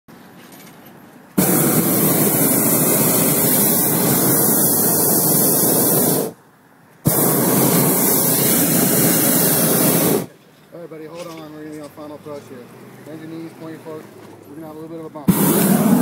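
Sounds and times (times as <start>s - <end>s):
propane burner blast: 1.4s - 6.4s, 7.0s - 10.4s, 15.2s - 16.0s.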